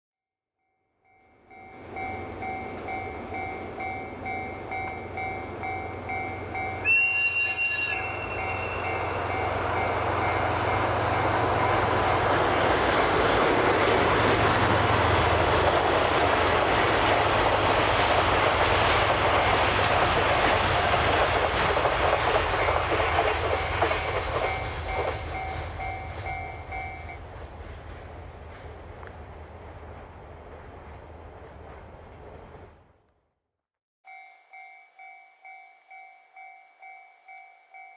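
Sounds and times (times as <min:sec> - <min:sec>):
level-crossing bell dinging: 0:00.7 - 0:12.1, 0:24.4 - 0:27.2, 0:34.1 - 0:37.9
train passing: 0:01.0 - 0:33.0
locomotive whistle blast: 0:06.7 - 0:09.5.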